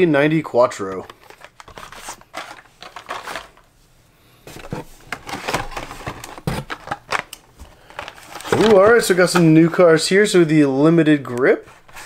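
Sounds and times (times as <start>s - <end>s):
plastic clicks and crinkles: 0.8s - 3.7s, 4.6s - 9.7s.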